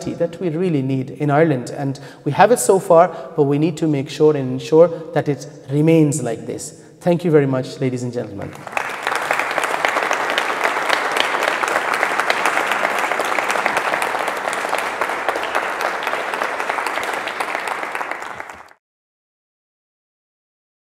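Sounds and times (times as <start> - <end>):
audience applauding: 8.5 - 18.8.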